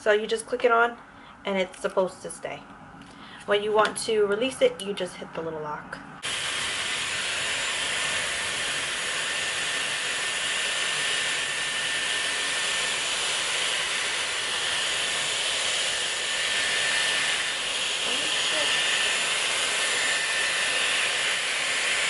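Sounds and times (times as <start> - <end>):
hair styler blowing air: 6.2 - 22.0
high motor whine: 6.2 - 22.0.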